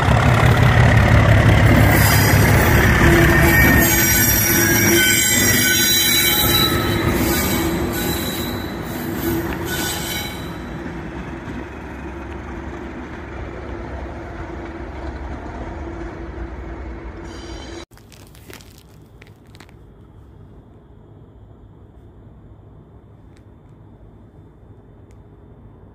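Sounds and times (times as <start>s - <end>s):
diesel locomotive engine: 0.0s - 25.9s
wheel squeal: 1.7s - 10.8s.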